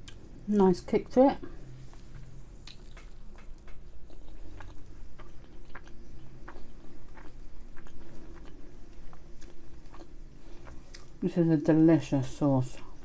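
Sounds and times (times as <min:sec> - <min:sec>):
low steady hum: 0:00.0 - 0:13.0
person chewing food: 0:01.6 - 0:11.2.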